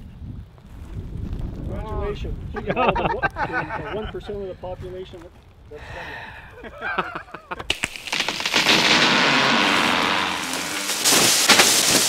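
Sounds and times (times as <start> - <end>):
man laughing: 2.5 - 4.4, 6.2 - 7.7.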